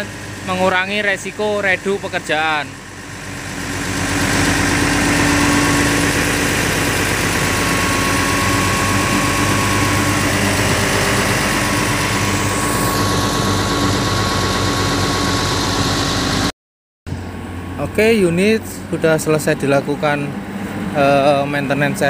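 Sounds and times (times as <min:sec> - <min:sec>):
excavator diesel engine running: 0:00.0 - 0:16.5.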